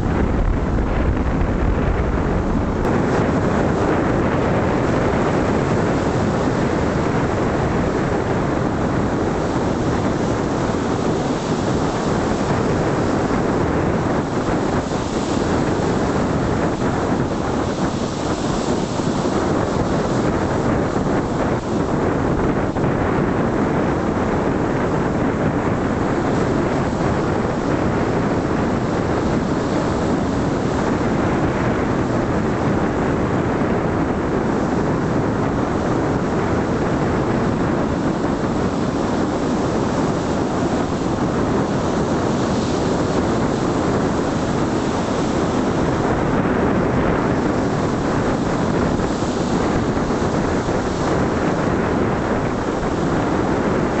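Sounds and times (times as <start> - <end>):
wind on microphone: 0.0 - 54.0.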